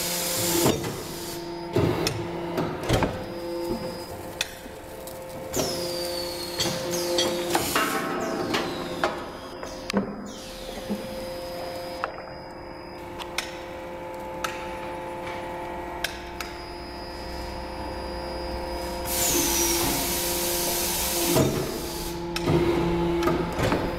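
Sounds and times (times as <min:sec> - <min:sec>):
machine motor hum: 0:00.0 - 0:23.9
loud hiss: 0:19.0 - 0:22.2.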